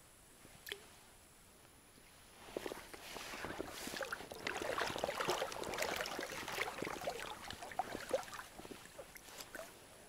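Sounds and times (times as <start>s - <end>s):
small splashes and plinks: 0.6s - 0.9s, 3.5s - 9.7s
water sloshing and gurgling: 2.5s - 9.8s.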